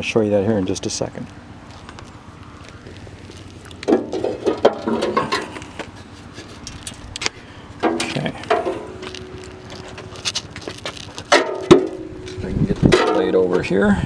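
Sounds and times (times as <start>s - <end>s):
metal step clanking and scraping: 3.8s - 5.9s, 6.5s - 13.6s.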